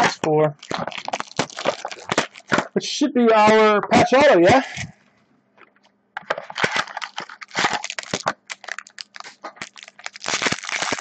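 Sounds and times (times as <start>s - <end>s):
plastic shrink wrap crinkling: 0.1s - 2.8s, 6.3s - 11.0s.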